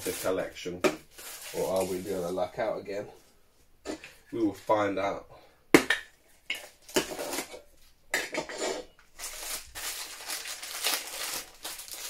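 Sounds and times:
plastic bag rustling: 0.0 - 2.7, 8.7 - 12.0.

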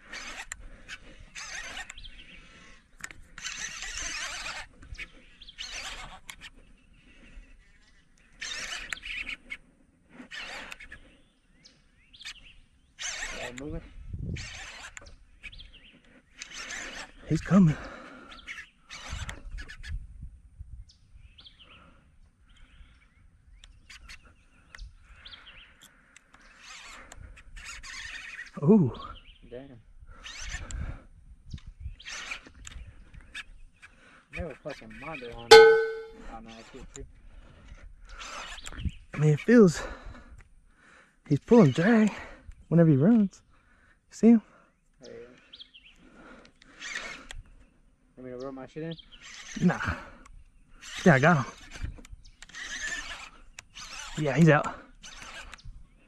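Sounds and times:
fishing reel buzzing: 0.0 - 2.0, 3.2 - 4.7, 52.5 - 54.3
birds chirping: 0.0 - 13.8, 14.7 - 18.9, 20.9 - 26.8, 43.4 - 56.0.

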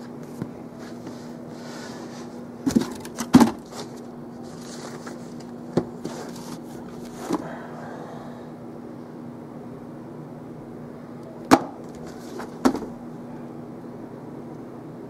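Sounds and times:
paper rustling: 0.8 - 7.4
books knocking and thumping: 2.6 - 4.0, 11.5 - 13.0.

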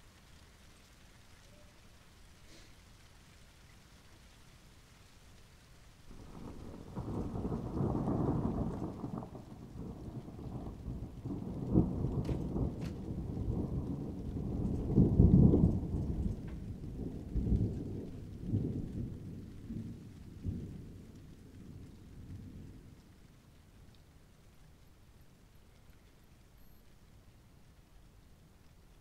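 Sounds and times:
rolling thunder: 6.1 - 23.9.

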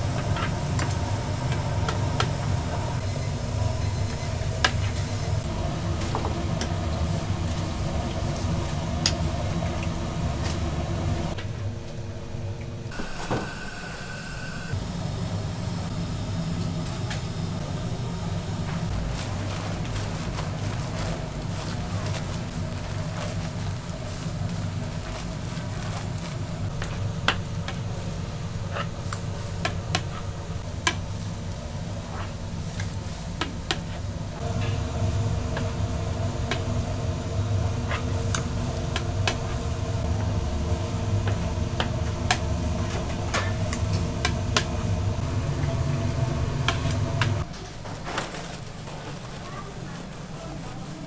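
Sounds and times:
machine motor humming: 0.0 - 11.4, 12.9 - 19.6, 34.4 - 47.5.

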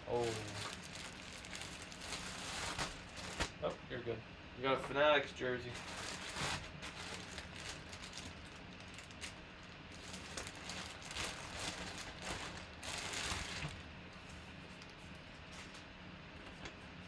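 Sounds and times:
plastic bag crinkling: 0.0 - 3.6, 5.7 - 13.8.

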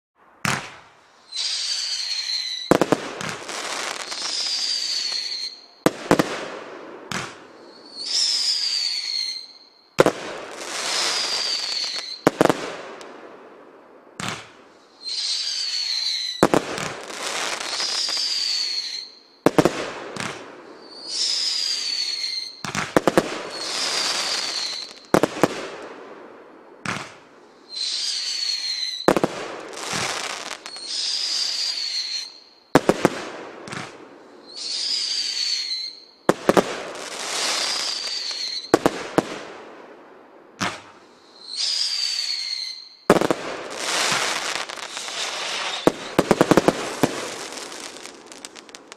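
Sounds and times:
hissing crackle of stars: 0.7 - 48.9
firework whistle falling in pitch: 1.3 - 2.8, 3.9 - 5.7, 7.8 - 9.8, 10.8 - 12.2, 17.5 - 19.2, 20.9 - 22.7, 23.5 - 25.1, 27.7 - 29.1, 29.9 - 32.5, 34.5 - 36.1, 37.3 - 38.7, 41.4 - 48.6.

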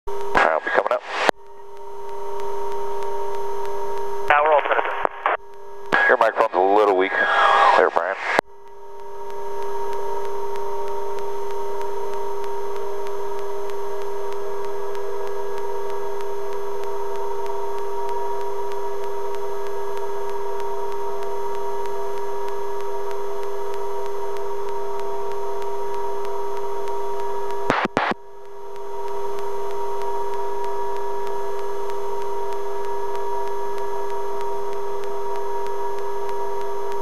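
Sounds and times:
helicopter hum and whine: 0.1 - 37.0
intercom crackle: 0.1 - 37.0
intercom hiss: 4.3 - 8.4.

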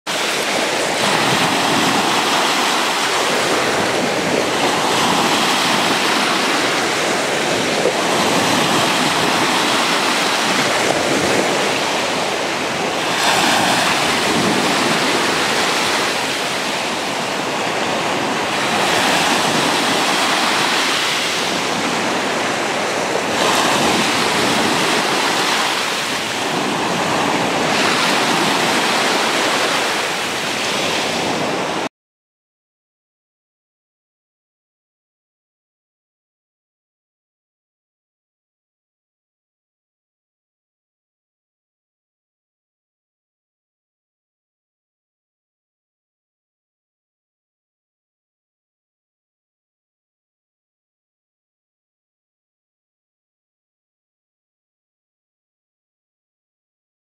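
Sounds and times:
sea waves splashing in shallows: 0.1 - 31.9.

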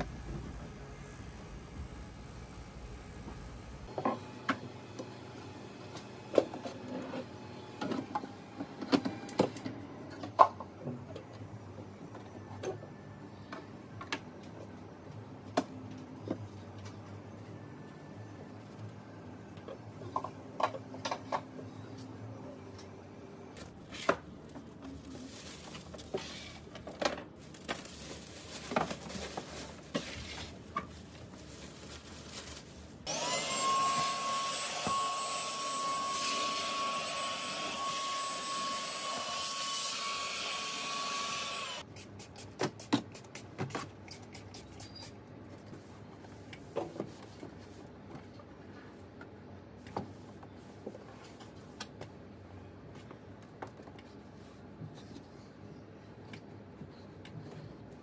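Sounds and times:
handheld vacuum whining: 33.1 - 41.8.

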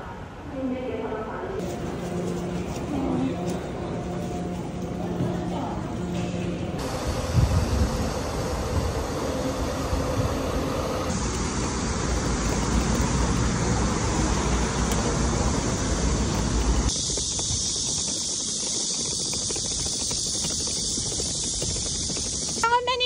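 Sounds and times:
bus engine idling: 1.6 - 22.7
suitcase wheels rolling over paving: 11.0 - 23.0.

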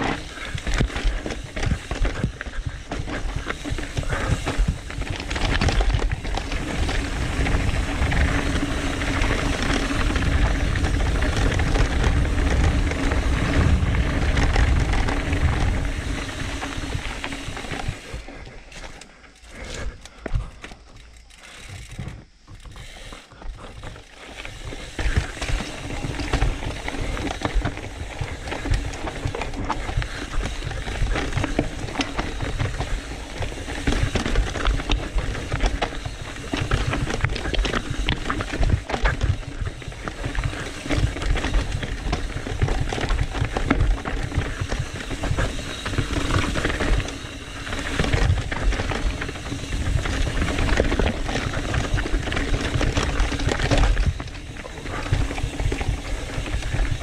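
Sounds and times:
wind rumbling on microphone: 0.0 - 18.7, 19.6 - 57.0
mountain bike rattling over rocks: 0.0 - 57.0.

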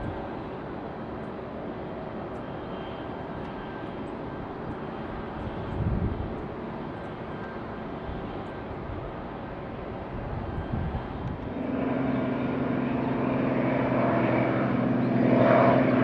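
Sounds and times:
wind rumble on microphone: 0.0 - 0.3, 4.6 - 6.6, 8.0 - 11.7
distant jet engines running: 0.0 - 16.0.

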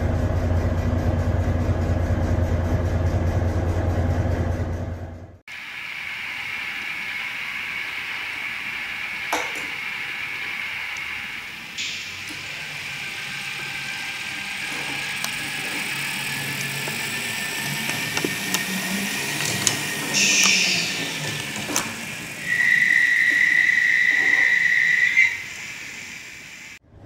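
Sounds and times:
model diesel engine sound: 0.0 - 27.0
high-pitched steady tone: 5.5 - 26.8.

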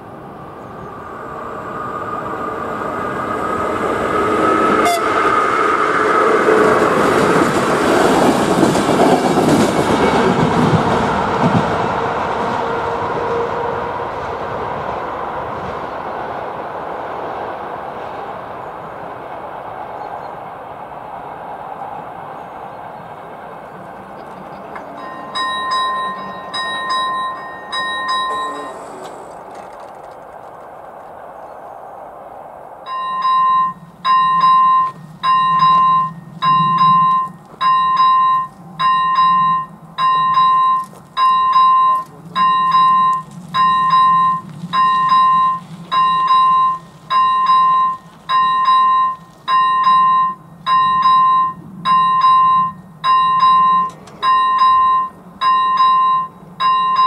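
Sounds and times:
level crossing bell dinging: 24.9 - 29.0, 32.9 - 57.0.

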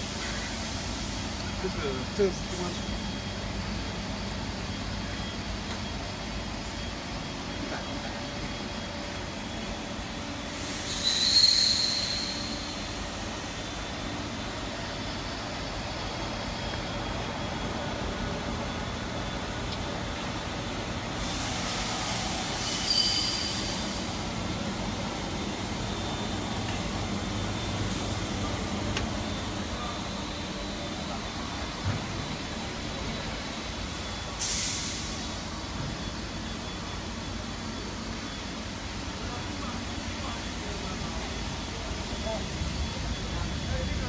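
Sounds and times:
machinery humming: 0.0 - 44.0
loud hiss with high whistle: 8.3 - 17.8, 21.1 - 28.6, 29.2 - 44.0.

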